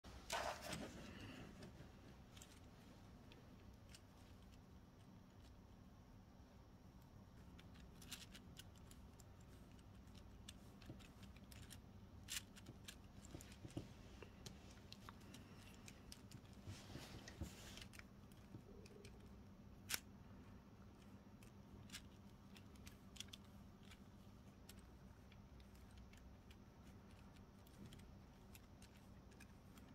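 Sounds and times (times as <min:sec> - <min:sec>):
soft rustle: 0:00.1 - 0:05.8, 0:07.4 - 0:29.9
plastic gears clicking: 0:07.4 - 0:13.8.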